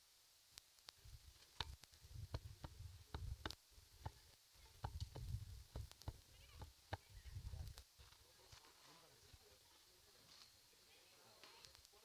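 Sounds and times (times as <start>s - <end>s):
faint sharp clicks: 0.6s - 2.0s, 11.4s - 12.0s.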